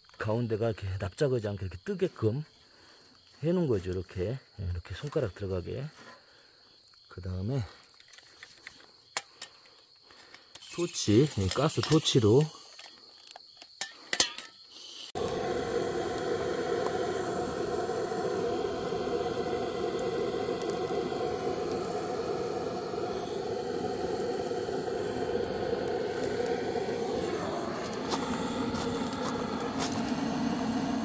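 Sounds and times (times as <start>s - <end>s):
gas torch flame hissing: 10.6s - 12.7s, 14.8s - 31.0s
gas torch igniter clicks: 15.2s - 31.0s.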